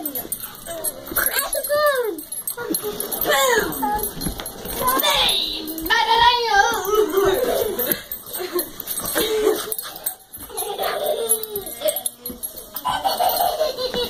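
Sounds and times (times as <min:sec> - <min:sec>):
dogs whining and yipping: 0:06.6 - 0:14.0.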